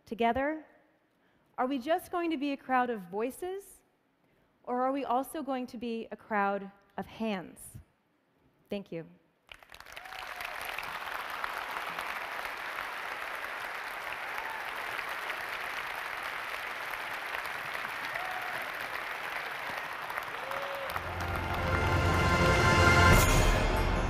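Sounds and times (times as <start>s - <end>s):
audience applauding: 9.5s - 23.5s
closing music: 20.9s - 24.0s.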